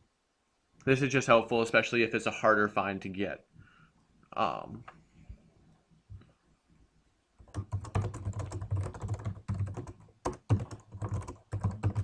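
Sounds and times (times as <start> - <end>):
computer keyboard typing: 7.4 - 12.0.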